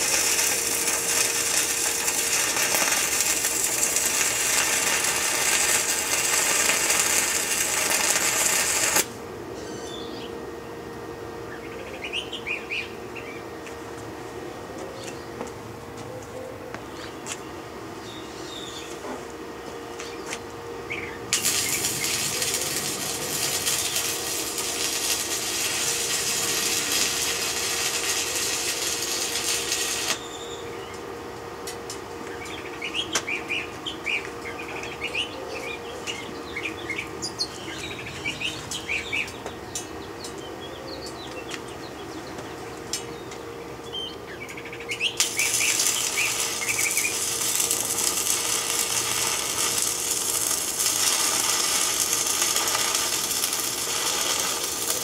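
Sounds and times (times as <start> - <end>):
arc welding crackling hiss: 0.0 - 9.2, 21.2 - 30.4, 45.0 - 55.0
steady hum: 0.0 - 55.0
small birds chirping: 11.5 - 13.4, 16.2 - 19.0, 32.3 - 51.6.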